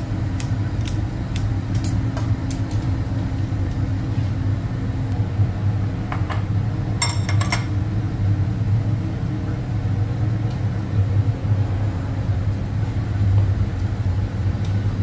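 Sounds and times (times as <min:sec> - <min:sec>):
kitchen machinery humming: 0:00.0 - 0:15.0.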